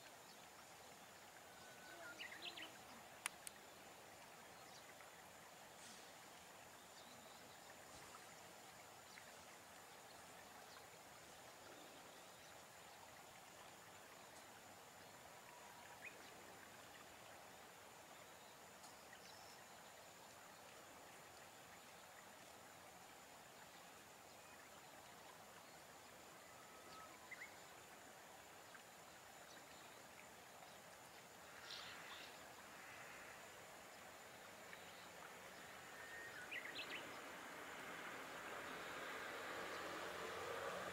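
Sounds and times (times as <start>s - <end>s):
outdoor background hiss: 0.0s - 40.9s
faint high calls: 26.3s - 27.4s.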